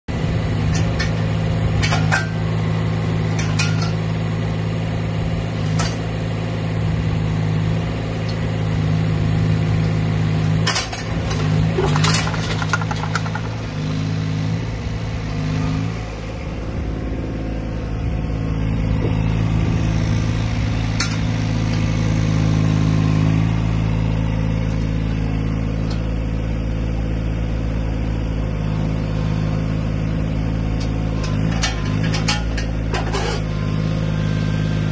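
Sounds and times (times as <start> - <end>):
mini excavator diesel engine: 0.1 - 34.9
sharp metallic knocks: 10.6 - 13.8.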